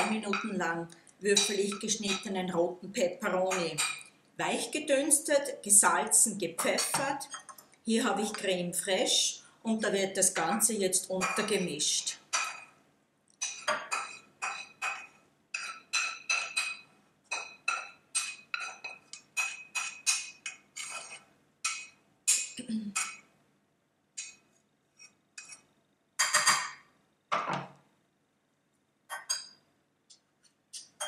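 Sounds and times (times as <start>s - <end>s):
spatula scraping and tapping pan: 1.3s - 2.4s, 6.6s - 8.5s, 11.2s - 12.8s, 13.4s - 23.2s, 24.2s - 26.8s
utensils clinking in glass bowl: 13.4s - 23.2s.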